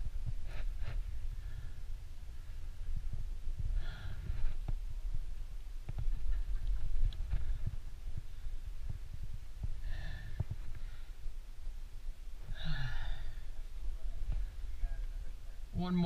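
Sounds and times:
steady low rumble: 0.0 - 16.0
hard exhalations: 9.7 - 11.2, 12.4 - 13.7.

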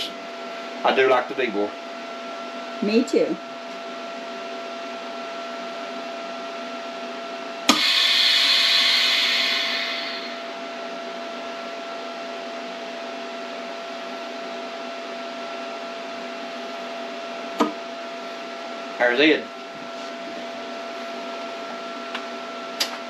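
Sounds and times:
steady machine hum: 0.0 - 23.0
air hissing into chamber: 7.7 - 10.5.

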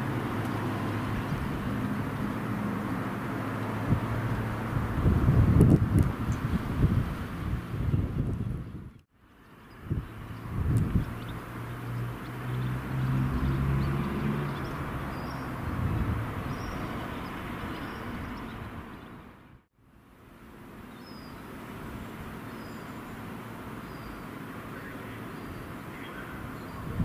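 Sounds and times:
outdoor background noise: 0.0 - 27.0
faint birds chirping: 7.8 - 19.5, 20.8 - 21.7, 22.4 - 27.0.

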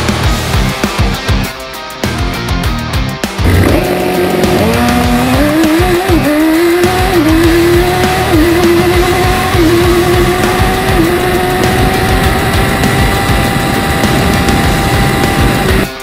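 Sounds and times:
music: 0.0 - 16.0
racing car engine revving high: 3.4 - 16.0.

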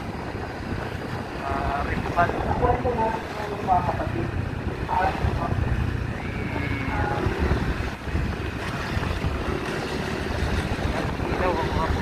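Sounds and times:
wind buffeting microphone: 0.0 - 12.0
motorcycle engine running: 3.8 - 12.0.

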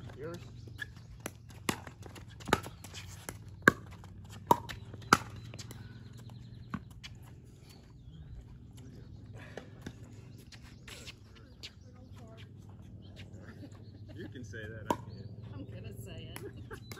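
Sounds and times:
paddles hitting pickleball: 0.0 - 7.3, 9.1 - 11.8, 14.7 - 15.5, 16.3 - 16.9.

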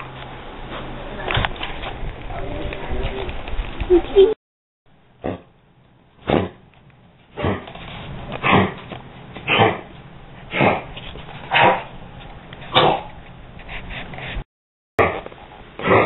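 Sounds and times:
dog coughing: 5.2 - 5.5, 6.2 - 6.6, 9.5 - 9.9, 10.5 - 10.9.

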